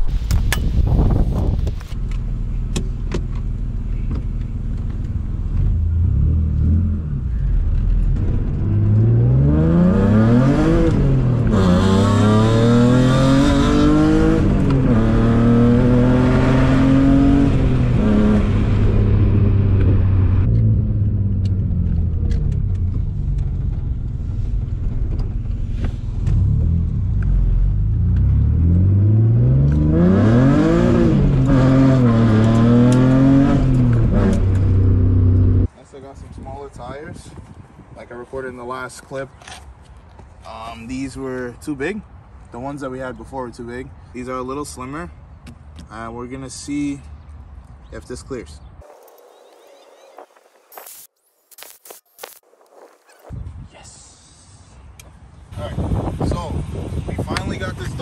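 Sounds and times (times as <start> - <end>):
car engine revving through gears: 7.8 - 22.4, 26.2 - 35.7.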